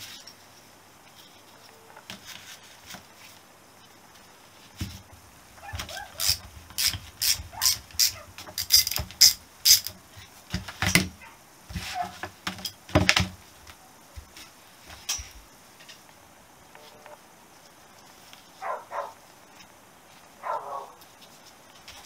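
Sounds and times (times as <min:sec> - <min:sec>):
socket ratchet clicking: 0:06.2 - 0:10.0.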